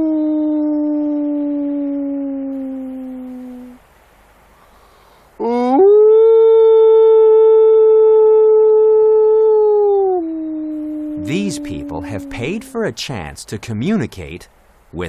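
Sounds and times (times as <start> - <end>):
wolf howling: 0.0 - 3.8, 5.6 - 12.9.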